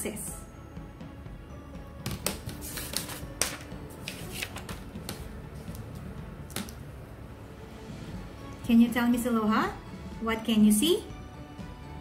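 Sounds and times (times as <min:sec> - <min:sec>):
cards clicking and rustling: 0:02.1 - 0:05.9.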